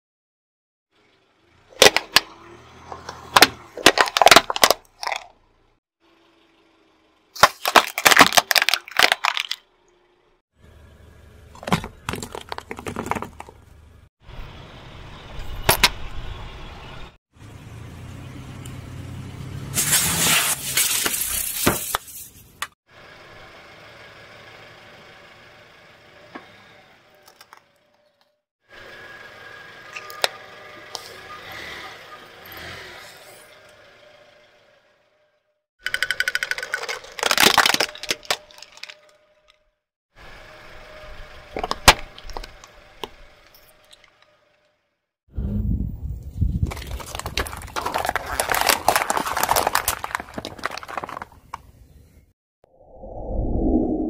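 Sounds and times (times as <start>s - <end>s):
plastic cracking under car tyre: 3.0s - 5.3s, 7.4s - 9.6s, 11.6s - 13.6s, 35.9s - 39.1s, 41.5s - 43.2s, 46.6s - 51.7s
aerosol can bursting with hiss: 19.8s - 22.0s.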